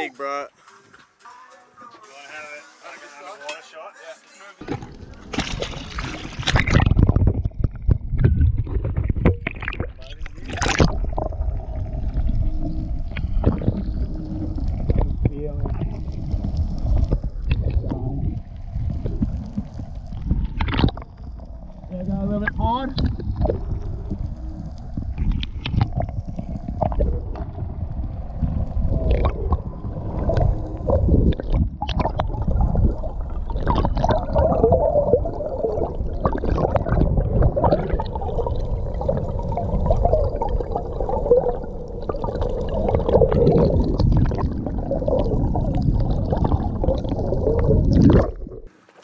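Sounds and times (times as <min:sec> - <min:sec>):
low underwater rumble: 0:04.6 - 0:48.8
underwater gurgling and sloshing: 0:04.6 - 0:49.0.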